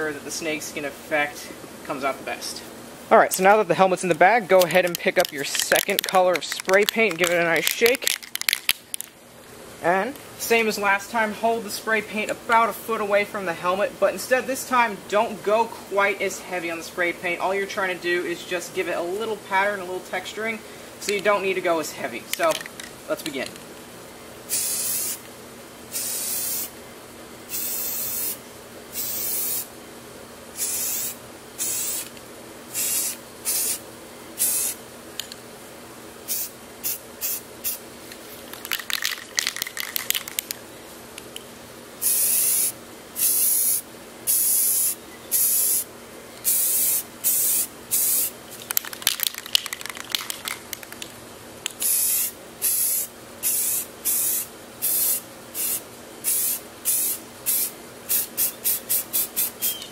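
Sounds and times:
spray can rattling clicks: 0:04.1 - 0:09.2, 0:22.3 - 0:23.6, 0:38.4 - 0:40.6, 0:46.5 - 0:52.8
spray paint can hissing: 0:24.5 - 0:25.2, 0:25.9 - 0:26.7, 0:27.5 - 0:28.4, 0:29.0 - 0:29.7, 0:30.6 - 0:32.1, 0:32.7 - 0:33.8, 0:34.4 - 0:34.8, 0:36.3 - 0:37.8, 0:38.4 - 0:40.6, 0:42.0 - 0:51.0, 0:51.7 - 0:59.9.

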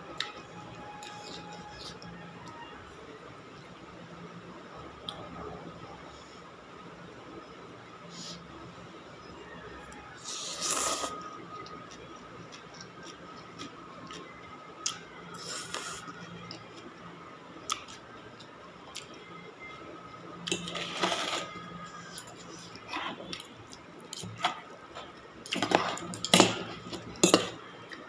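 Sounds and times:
cutlery scraping metal bowl: 0:20.5 - 0:21.5, 0:25.5 - 0:27.6.

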